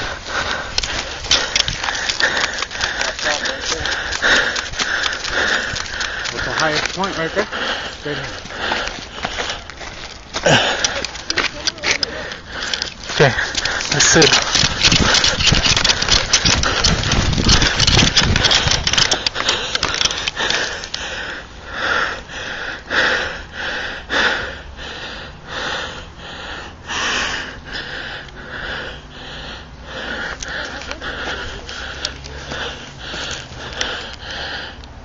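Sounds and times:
rustling and scuffing: 0:00.0 - 0:21.0
heavy rapid breathing: 0:00.0 - 0:35.0.

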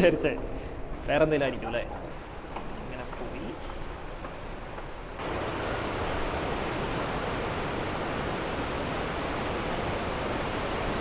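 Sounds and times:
whitewater rapids rushing: 0:05.0 - 0:11.0.

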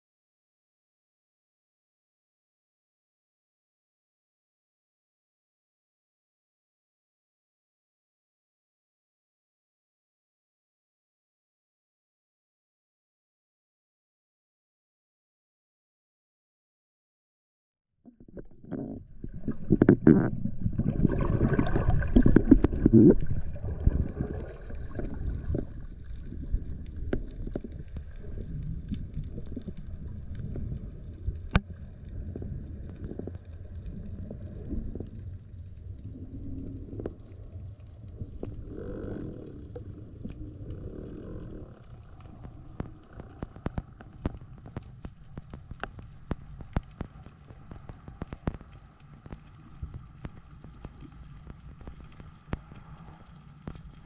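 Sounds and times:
low underwater rumble: 0:18.1 - 0:54.0
sharp clicks and crackles: 0:21.8 - 0:54.0
rapid high beeps: 0:48.6 - 0:51.2.

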